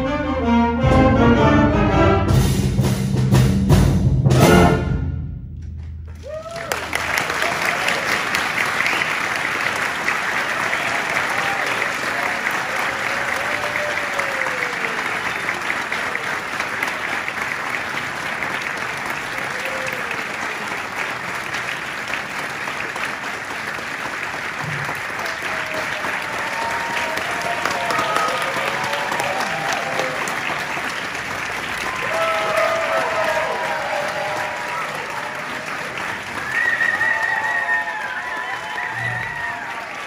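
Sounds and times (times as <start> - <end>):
audience applauding: 6.0 - 40.0
whoops and cheers: 6.2 - 8.3, 10.6 - 15.2, 19.3 - 20.5, 25.2 - 30.4, 31.8 - 40.0.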